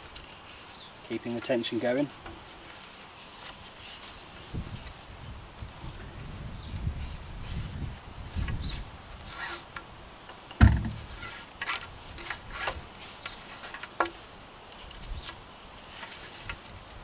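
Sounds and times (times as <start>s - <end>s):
rope scraping against poles: 0.0s - 5.0s, 6.8s - 17.0s
loud deep thump: 10.6s - 11.2s.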